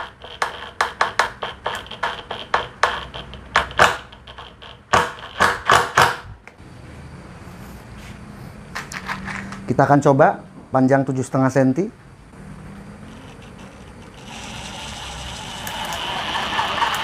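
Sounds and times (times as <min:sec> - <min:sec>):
impact driver driving screw into wood: 0:04.9 - 0:06.3.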